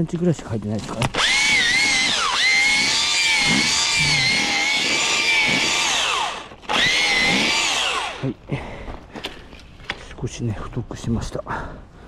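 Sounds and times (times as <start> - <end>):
hammer drill motor whining: 1.0 - 8.4.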